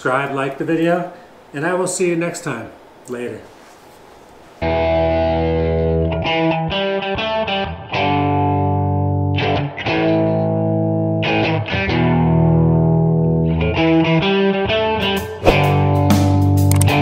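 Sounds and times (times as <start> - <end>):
distorted electric guitar chords: 4.6 - 14.6.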